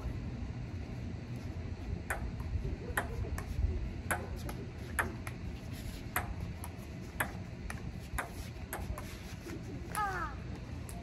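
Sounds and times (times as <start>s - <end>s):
steady low rumble: 0.0s - 11.0s
ping pong ball clicks: 2.1s - 3.5s.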